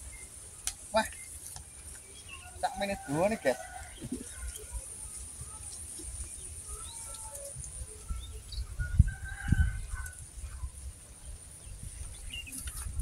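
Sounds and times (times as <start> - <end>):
low gusty rumble: 7.6 - 13.0.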